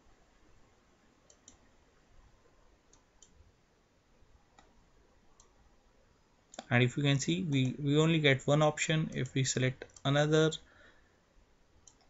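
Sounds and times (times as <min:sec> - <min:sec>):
computer mouse clicks: 0:01.2 - 0:01.7, 0:02.9 - 0:03.4, 0:04.5 - 0:04.8, 0:05.4 - 0:05.6, 0:11.8 - 0:12.0.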